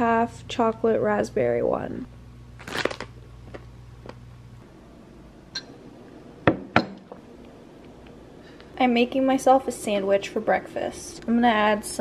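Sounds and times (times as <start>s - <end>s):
brief crackle: 2.6s - 3.6s.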